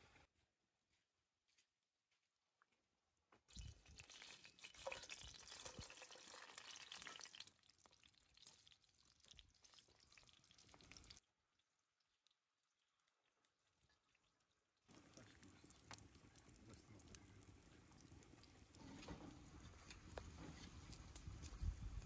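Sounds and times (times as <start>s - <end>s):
pastries sizzling in hot oil: 3.5s - 11.2s, 14.9s - 22.0s.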